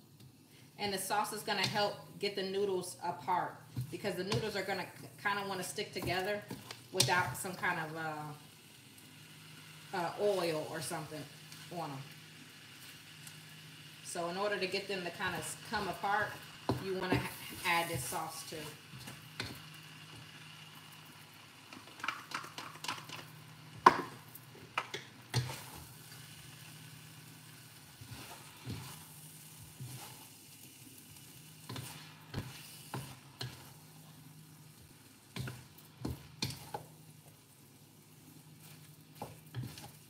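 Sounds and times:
noodles sizzling: 0.0 - 40.0
utensils knocking and scraping wok: 15.2 - 19.6, 21.7 - 26.2, 27.9 - 30.3, 31.6 - 34.2, 34.8 - 37.0, 38.6 - 40.0.

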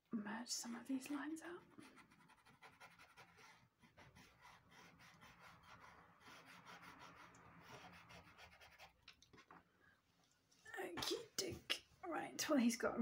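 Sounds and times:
cotton bud rubbing on paper: 1.7 - 9.0.

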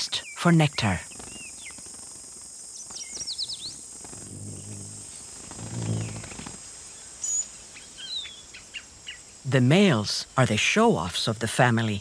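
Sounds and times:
bird chirping: 0.0 - 2.0, 2.6 - 9.4
high insect chorus: 0.0 - 12.0
soft low hums: 4.1 - 6.5.

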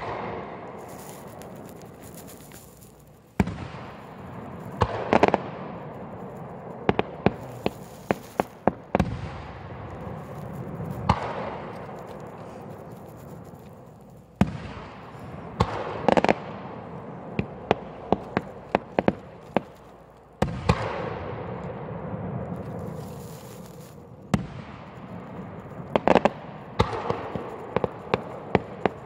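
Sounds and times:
firework booms: 0.0 - 29.0
firework pops and cracks: 0.0 - 29.0.

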